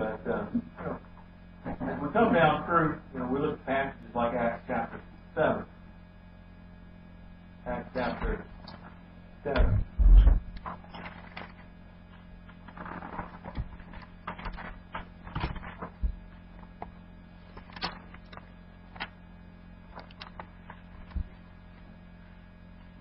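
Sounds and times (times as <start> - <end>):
steady low hum: 0.0 - 23.0
book pages rustling: 10.6 - 19.2, 19.9 - 21.5.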